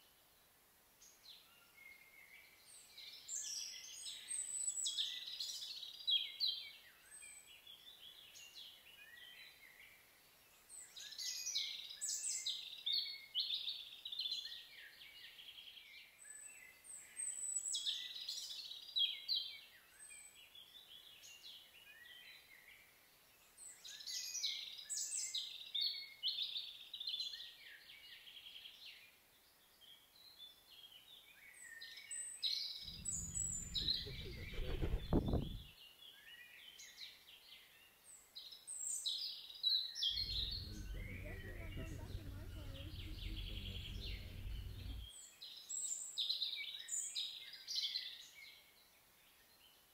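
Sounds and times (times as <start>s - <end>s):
songbirds trilling: 32.9s - 35.6s, 40.2s - 45.1s
low rumble: 32.9s - 35.7s, 40.2s - 45.1s.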